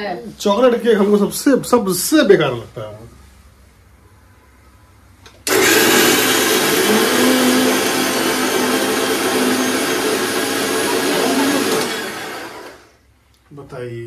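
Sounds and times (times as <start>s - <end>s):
mixer grinder whirring: 5.4s - 13.0s.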